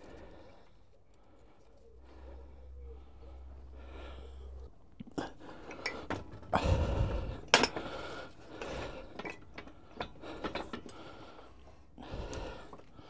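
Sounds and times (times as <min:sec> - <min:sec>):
metal clinks and knocks: 0:08.7 - 0:11.0.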